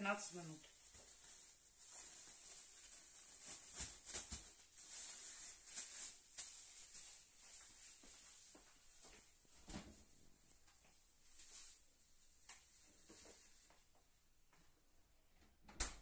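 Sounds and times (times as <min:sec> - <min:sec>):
plastic bag crinkling: 0:00.0 - 0:09.0, 0:11.2 - 0:13.7
small crackles: 0:00.6 - 0:09.8, 0:10.5 - 0:14.0.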